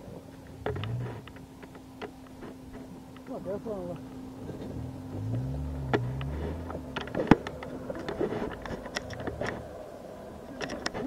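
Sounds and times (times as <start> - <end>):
engine revving under load: 0.6 - 1.3, 4.3 - 10.0.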